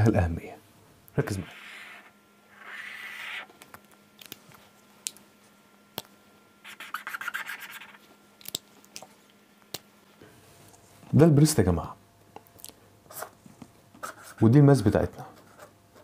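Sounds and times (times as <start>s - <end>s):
pen scratching on paper: 1.4s - 3.5s, 6.6s - 8.0s.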